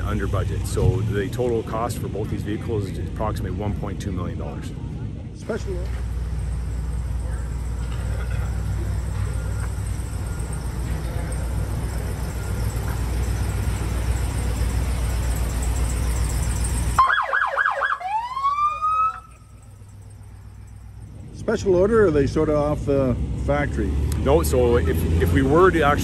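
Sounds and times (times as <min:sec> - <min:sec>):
fire truck engine rumble: 0:00.0 - 0:26.0
electronic siren yelp and wail: 0:17.0 - 0:19.4.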